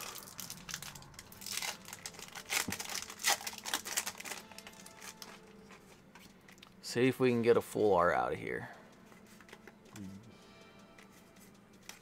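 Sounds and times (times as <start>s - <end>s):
foil wrapper tearing and crinkling: 0.0s - 5.4s.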